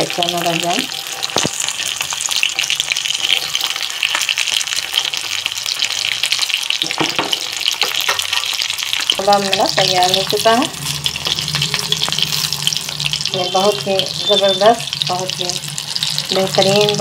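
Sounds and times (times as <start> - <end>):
meat sizzling in hot oil: 0.0 - 17.0
metal spatula knocking pan: 6.8 - 8.6.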